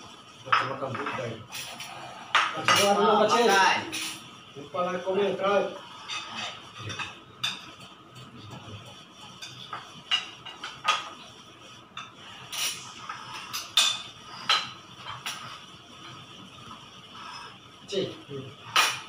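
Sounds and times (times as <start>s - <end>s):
plates and bowls clinking: 6.0s - 11.3s, 11.9s - 16.2s.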